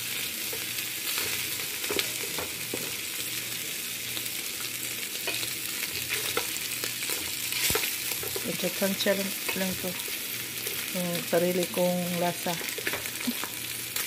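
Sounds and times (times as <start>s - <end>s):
meat sizzling in a pan: 0.0s - 14.0s.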